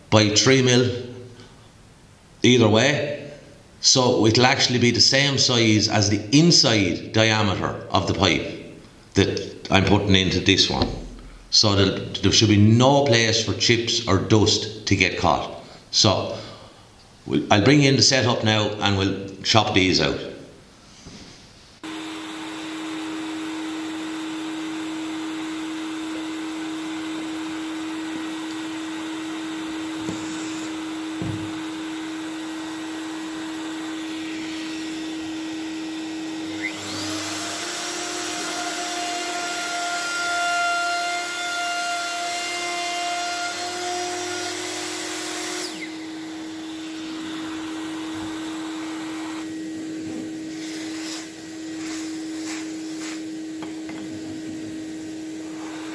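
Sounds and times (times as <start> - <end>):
dust extraction vacuum running: 21.8 - 55.9
router whining: 21.8 - 55.9.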